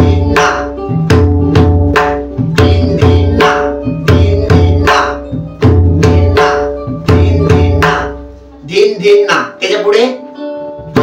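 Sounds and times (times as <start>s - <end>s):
deep ringing drum bass: 0.0s - 8.2s
pakhawaj drum strokes: 0.0s - 8.6s.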